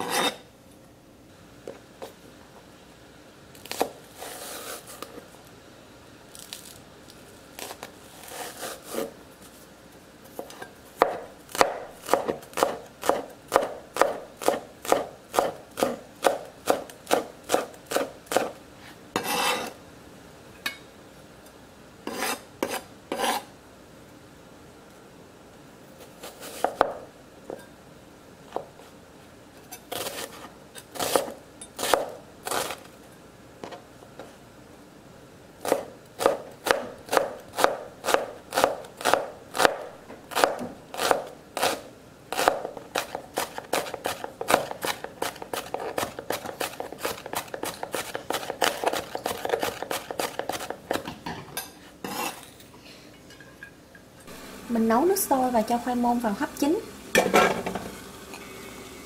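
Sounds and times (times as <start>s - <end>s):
knife slicing shallot: 3.6s - 5.1s, 7.6s - 9.2s, 10.4s - 18.6s, 19.2s - 19.8s, 22.0s - 23.5s, 26.0s - 27.0s, 29.8s - 32.9s, 35.6s - 51.1s
knife chopping on plastic board: 11.0s - 18.5s, 35.7s - 51.2s.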